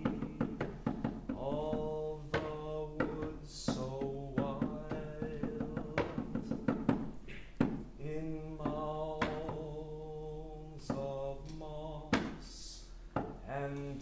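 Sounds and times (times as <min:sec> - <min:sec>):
man singing long held notes: 0:00.0 - 0:00.6, 0:01.4 - 0:06.7, 0:08.0 - 0:14.0
knuckles knocking on piano body: 0:04.4 - 0:07.8.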